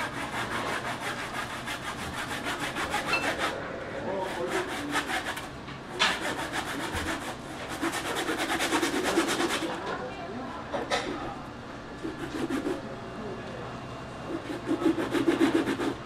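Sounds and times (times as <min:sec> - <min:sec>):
knife sawing through fish: 0:00.0 - 0:09.8, 0:12.0 - 0:12.8, 0:14.3 - 0:16.0.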